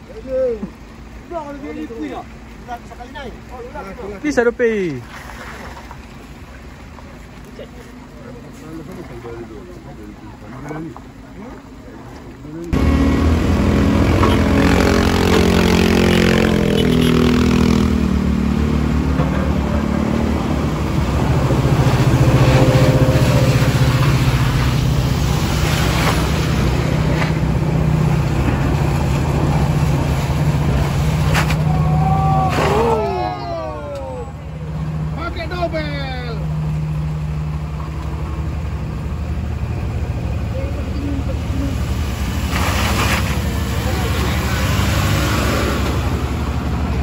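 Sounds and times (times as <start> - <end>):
pickup engines pulling hard: 0.0 - 47.0
voices calling out: 30.6 - 47.0.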